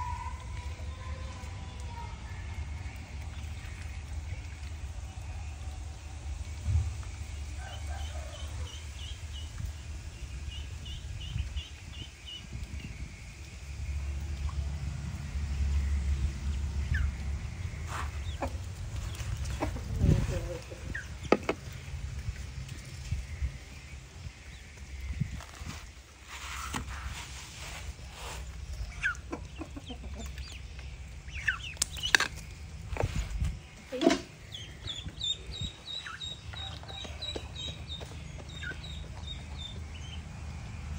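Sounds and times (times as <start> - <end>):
low steady rumble: 0.0 - 40.9
ducklings peeping: 7.7 - 13.1, 16.0 - 40.3
chickens clucking: 16.9 - 21.8, 26.9 - 39.8.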